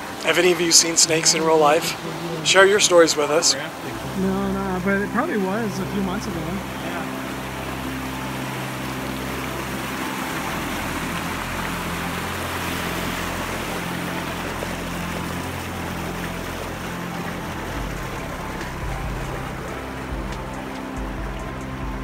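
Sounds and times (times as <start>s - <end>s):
creek water rushing: 0.0s - 22.0s.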